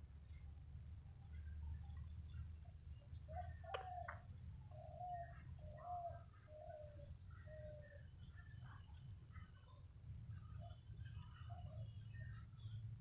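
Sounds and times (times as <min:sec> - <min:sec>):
faint high bird chirps: 0:00.3 - 0:13.0
bird low falling call: 0:03.3 - 0:08.0.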